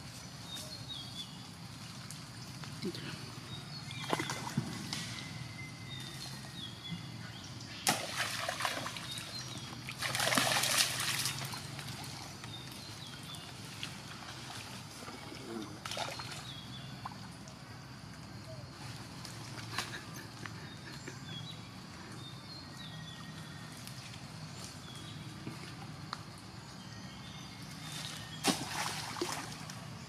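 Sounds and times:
monkey splashing in puddle: 3.9s - 4.8s, 7.8s - 15.2s, 28.4s - 29.8s.

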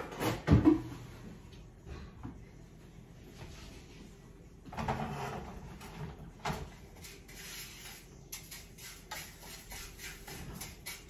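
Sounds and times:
spatula scraping frying pan: 7.0s - 11.0s.

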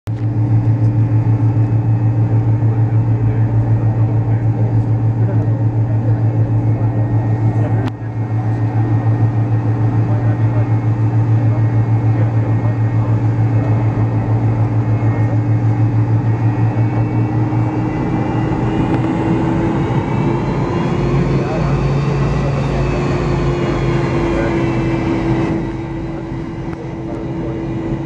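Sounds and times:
airliner engines humming: 0.1s - 28.0s
rising engine whine: 0.1s - 28.0s.

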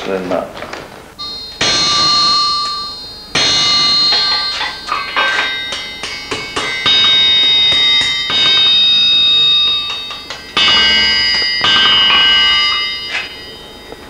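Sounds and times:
anvil ringing: 1.2s - 14.0s
hammer striking iron on anvil: 1.6s - 14.0s.

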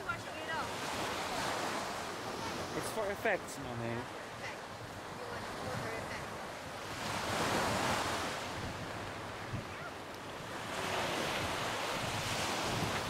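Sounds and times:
small waves breaking on beach: 0.0s - 13.0s
wind rumbling on microphone: 4.7s - 13.0s.

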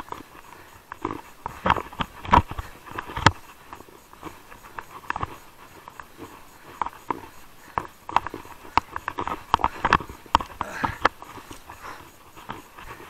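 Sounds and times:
mountain bike rattling over stones: 0.0s - 13.0s.

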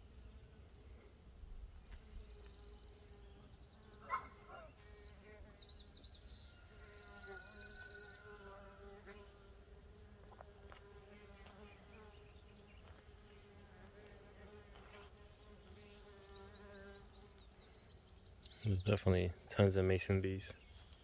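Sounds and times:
bees buzzing: 7.9s - 17.5s.

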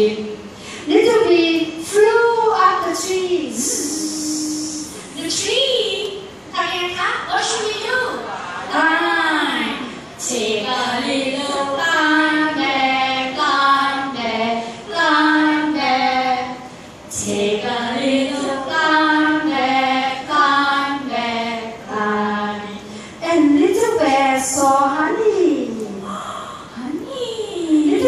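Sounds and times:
women singing into microphone: 9.8s - 26.7s.

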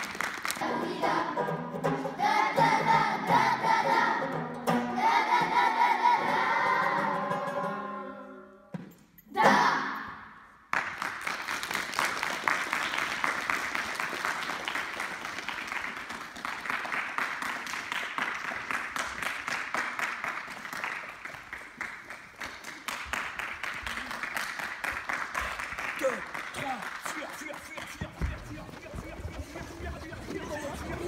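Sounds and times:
hands clapping: 0.0s - 0.7s, 10.7s - 31.0s
voices: 27.1s - 31.0s.

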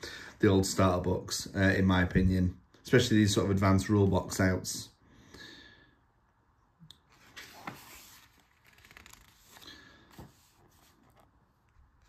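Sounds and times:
paper page rustling: 7.1s - 12.0s.

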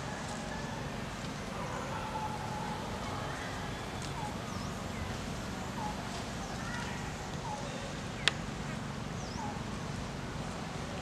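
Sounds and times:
forest ambience: 0.0s - 11.0s.

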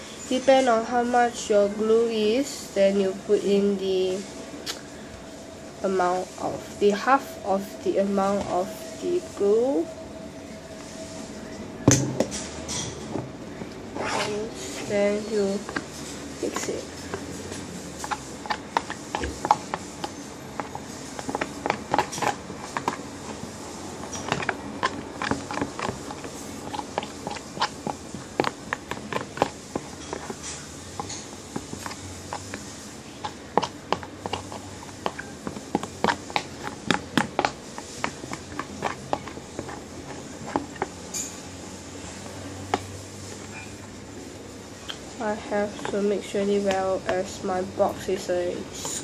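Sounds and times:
spoon scraping plastic tub: 12.2s - 41.4s, 45.2s - 47.4s.

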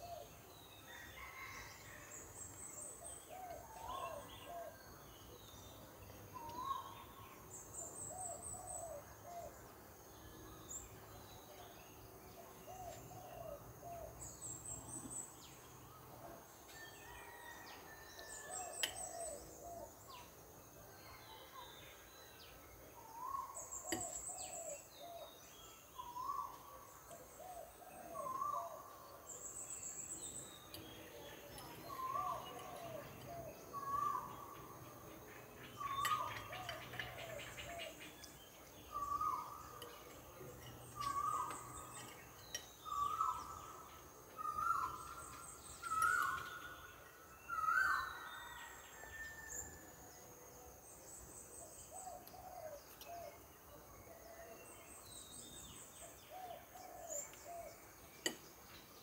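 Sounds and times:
birds whistling: 31.4s - 34.6s, 35.8s - 46.8s, 47.4s - 48.8s.

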